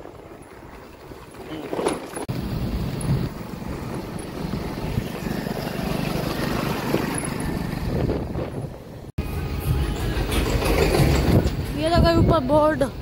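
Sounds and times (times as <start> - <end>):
scooter engine and road noise: 0.0 - 13.0.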